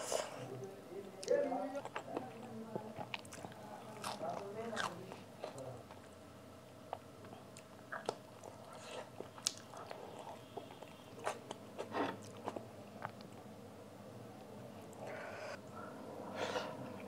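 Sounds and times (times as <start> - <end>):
person chewing food: 1.2 - 6.2, 6.9 - 13.5.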